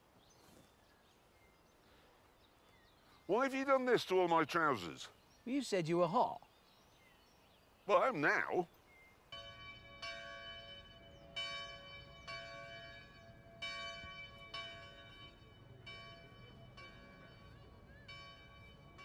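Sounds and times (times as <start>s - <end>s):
church bells ringing: 9.3s - 19.0s.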